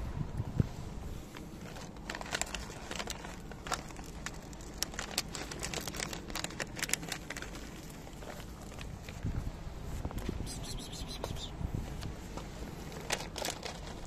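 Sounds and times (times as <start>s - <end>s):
plastic bag crinkling: 1.4s - 9.3s, 12.9s - 14.0s
dry kibble shaken out: 1.6s - 9.3s, 12.9s - 14.0s.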